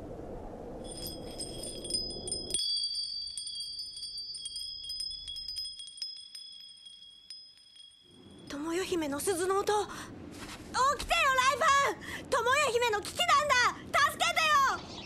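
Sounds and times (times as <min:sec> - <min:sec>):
small bells ringing: 0:00.9 - 0:09.6.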